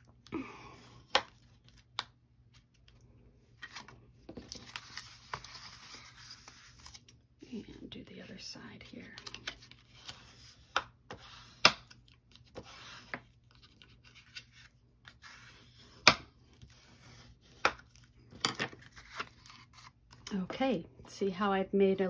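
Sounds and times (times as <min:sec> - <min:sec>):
scoring tool scraping cardstock: 0:12.4 - 0:13.2.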